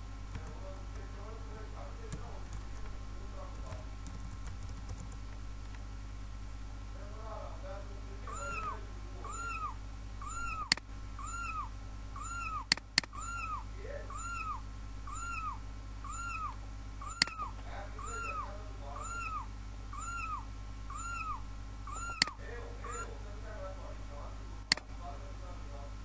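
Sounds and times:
meow-like call: 8.3 - 23.1
mouse clicks: 12.7 - 13.2, 17.1 - 17.5, 22.0 - 22.4.

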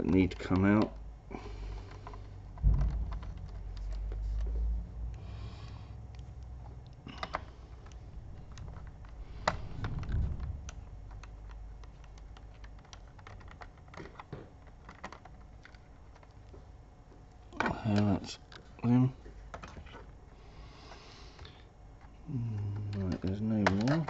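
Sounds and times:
low handling rumble: 1.2 - 13.2.

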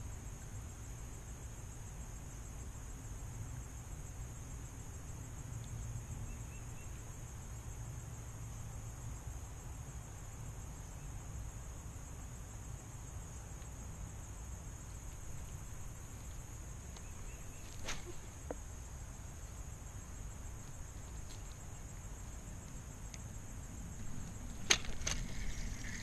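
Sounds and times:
faint bird chirps: 6.2 - 7.1, 15.2 - 18.6
low wind rumble: 11.7 - 26.0.

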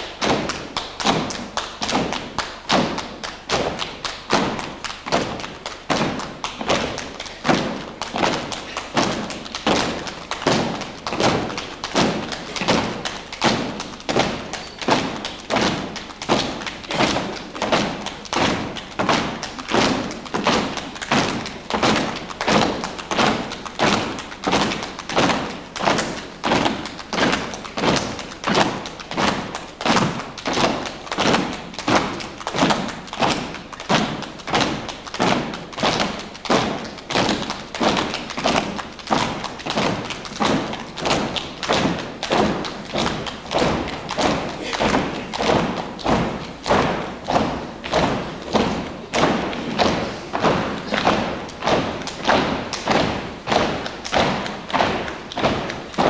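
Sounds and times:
body percussion hand slaps: 0.0 - 56.0.

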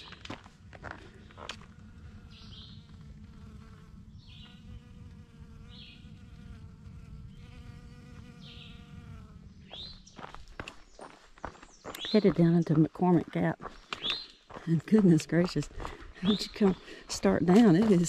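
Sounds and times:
flying insect buzzing: 1.4 - 10.3.

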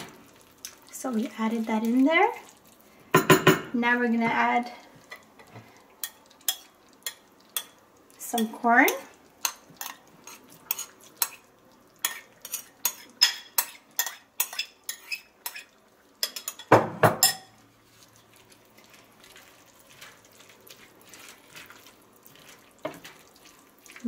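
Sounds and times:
wooden spoon stirring: 12.0 - 24.0.

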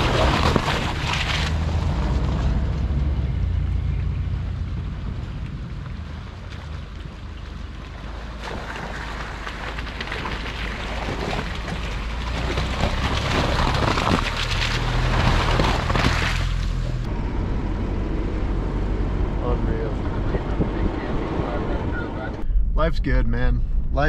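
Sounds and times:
tyres crunching and splashing: 0.0 - 2.4, 5.1 - 17.1
vehicle cabin drone: 0.0 - 10.2, 11.4 - 24.0.

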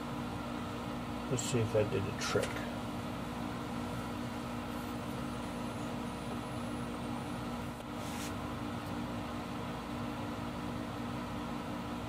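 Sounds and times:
steady mechanical hum: 0.0 - 12.0
soft scrape: 8.0 - 8.4.

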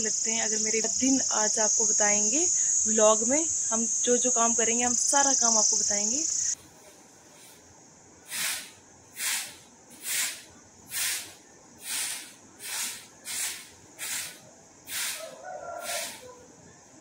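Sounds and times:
grass broom sweeping floor: 6.7 - 7.7, 8.3 - 16.4.

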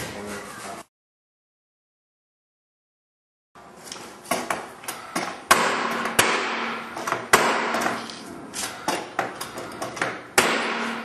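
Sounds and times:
nail gun shots: 5.5 - 8.0, 10.4 - 11.0.

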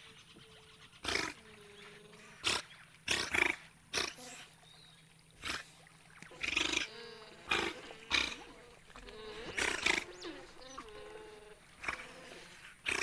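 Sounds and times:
wild animal calling: 6.3 - 13.0.

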